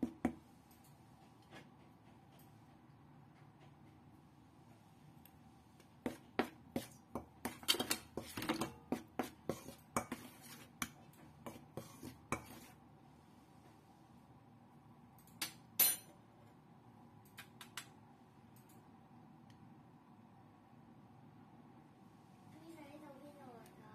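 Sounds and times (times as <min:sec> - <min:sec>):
utensil stirring in metal bowl: 0:06.0 - 0:12.8.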